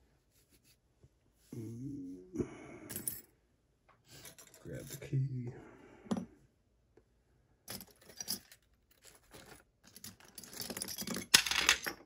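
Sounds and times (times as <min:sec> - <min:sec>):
metal lock parts clinking: 0:07.7 - 0:12.0.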